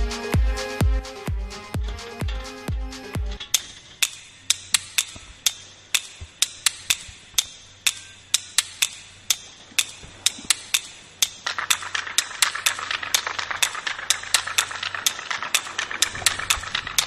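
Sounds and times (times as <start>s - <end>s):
electronic dance music percussion: 0.0s - 5.4s, 9.8s - 17.0s.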